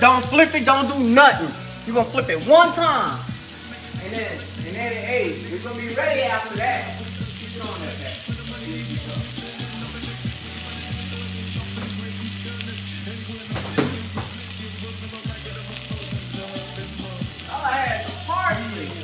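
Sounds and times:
fish and shrimp sizzling in pan: 0.0 - 19.0
knock: 13.5 - 14.4.

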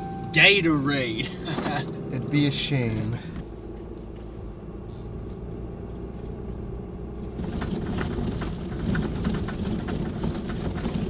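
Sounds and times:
truck engine hum: 0.0 - 11.0
truck rattling and knocking: 7.3 - 11.0.

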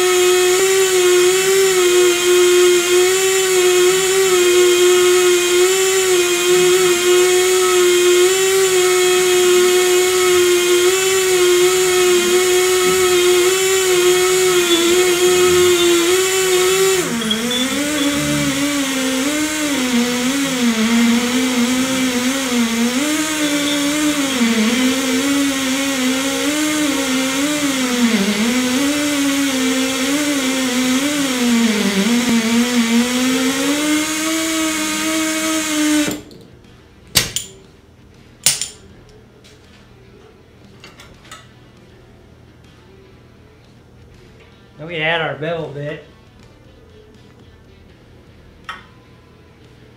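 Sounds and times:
air motor whining: 0.0 - 36.3.

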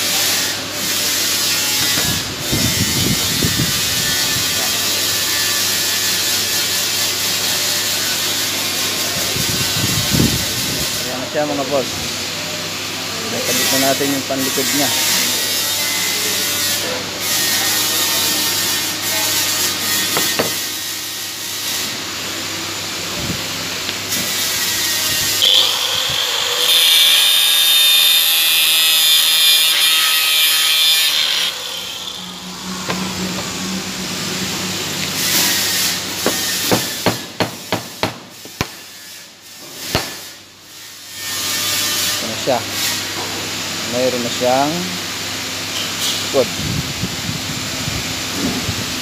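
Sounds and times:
welding arc hissing: 34.9 - 40.4.

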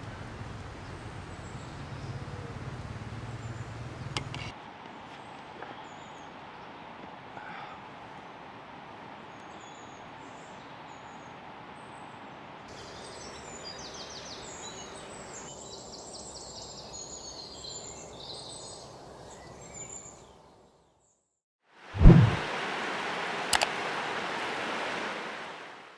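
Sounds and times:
steady background hiss: 12.2 - 20.7, 21.8 - 25.9.

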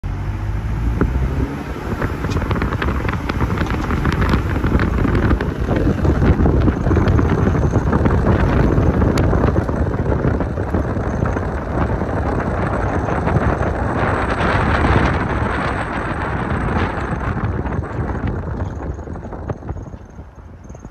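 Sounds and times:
car road and engine noise: 0.0 - 20.9
wind buffeting microphone: 0.1 - 20.9.

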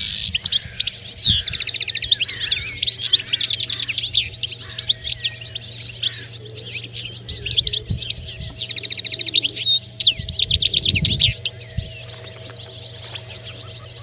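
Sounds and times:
fast rattling bird trills: 0.0 - 14.0
goldfinches twittering: 0.0 - 14.0.

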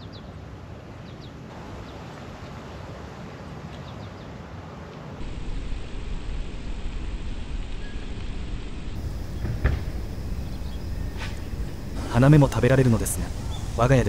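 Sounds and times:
wind buffeting microphone: 5.2 - 14.0
wind noise: 5.2 - 14.0
high bird chirps: 9.0 - 12.4, 13.1 - 13.8.

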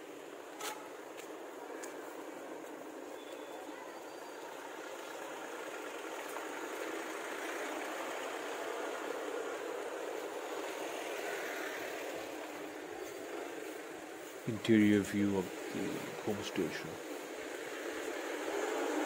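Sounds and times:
car driving past: 15.5 - 19.0.

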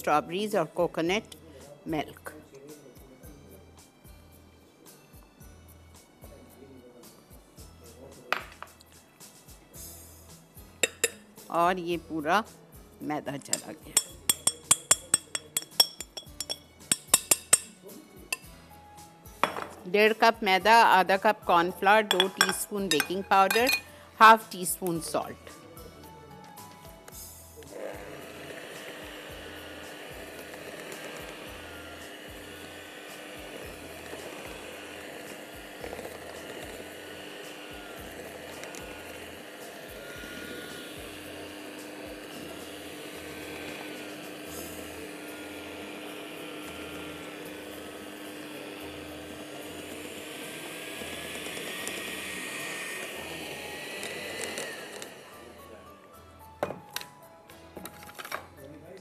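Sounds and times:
utensil clinking against glass bowl: 10.8 - 11.2, 13.5 - 18.5, 22.1 - 23.9
electric hand mixer whining: 10.8 - 11.3, 20.7 - 23.9, 27.6 - 56.8.

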